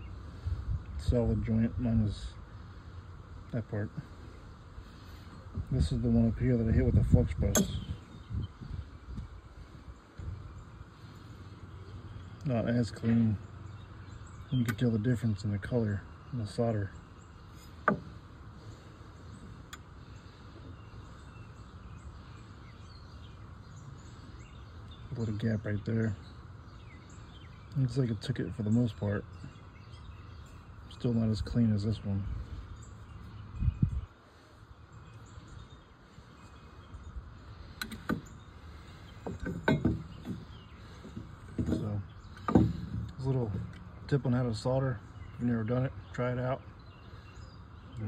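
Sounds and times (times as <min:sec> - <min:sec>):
faint background noise: 0:00.0 - 0:48.0
faint bird chirps: 0:00.0 - 0:48.0
copper pipe clinking and knocking: 0:07.5 - 0:07.9, 0:39.2 - 0:43.8.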